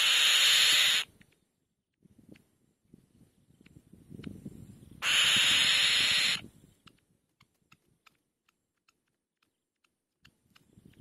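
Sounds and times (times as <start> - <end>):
bird harsh hissing screech: 0.0 - 1.1, 5.0 - 6.4.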